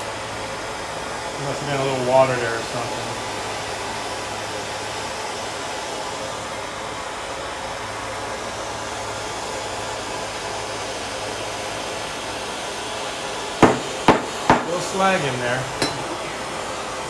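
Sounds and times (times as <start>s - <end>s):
gas torch flame hissing: 0.0s - 17.0s.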